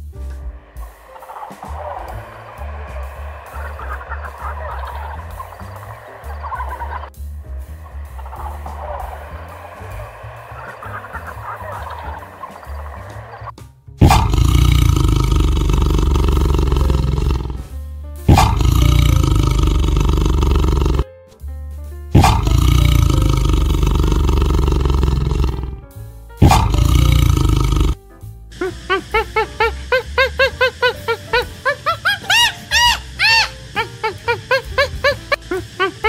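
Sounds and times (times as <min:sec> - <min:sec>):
background music: 0:00.0 - 0:36.0
large animal roaring: 0:00.8 - 0:17.7, 0:18.3 - 0:21.0, 0:22.2 - 0:25.8, 0:26.4 - 0:28.0
short chirping calls: 0:01.1 - 0:13.5, 0:32.1 - 0:35.4.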